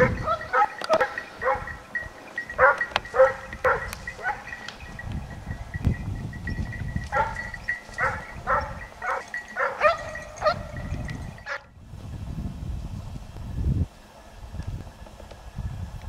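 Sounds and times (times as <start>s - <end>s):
dog barking: 0.0s - 1.8s, 2.6s - 4.6s, 7.1s - 10.7s.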